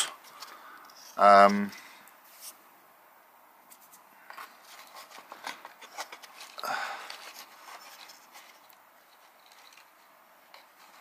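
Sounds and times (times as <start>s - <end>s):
scraping rustle: 3.7s - 11.0s.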